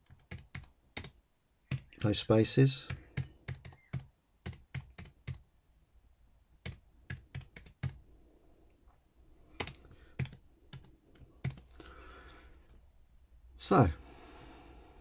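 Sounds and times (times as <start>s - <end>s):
keyboard typing: 0.0s - 2.2s, 2.8s - 5.5s, 6.6s - 8.0s, 9.5s - 11.8s.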